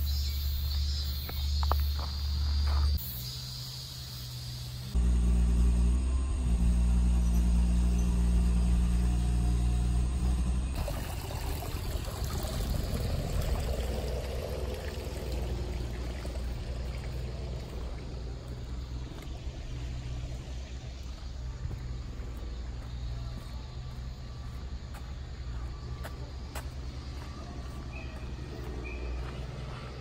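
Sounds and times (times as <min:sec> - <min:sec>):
low mechanical hum: 0:00.0 - 0:30.0
water trickling over stones: 0:10.8 - 0:21.2.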